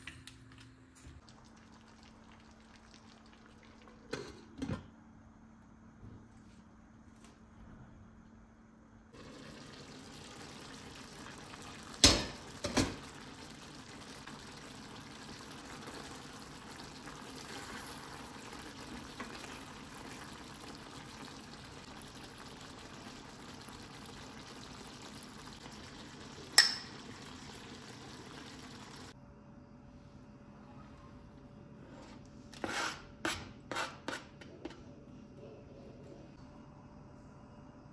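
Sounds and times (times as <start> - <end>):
vegetables bubbling in a pot: 1.2 - 4.6, 9.1 - 29.2
glass lid clinking: 26.6 - 27.0.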